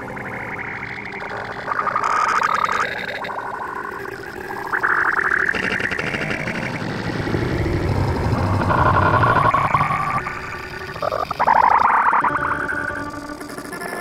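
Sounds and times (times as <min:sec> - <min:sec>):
buzzy warbling distorted tones: 0:04.4 - 0:13.5
low rumble: 0:06.3 - 0:11.6.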